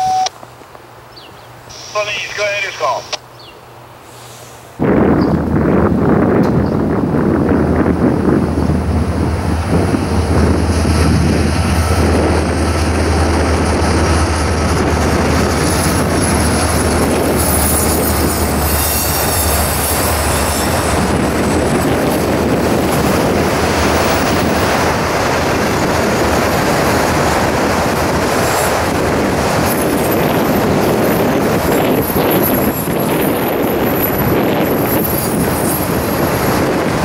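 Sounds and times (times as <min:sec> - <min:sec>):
diesel locomotive drone: 0:00.0 - 0:37.0
train cars rumbling on rails: 0:03.7 - 0:37.0
high wheel squeal: 0:17.2 - 0:21.0.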